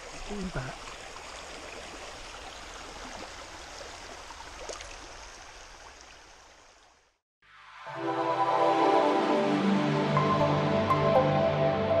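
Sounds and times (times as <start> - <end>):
stream water running over rocks: 0.0 - 7.2.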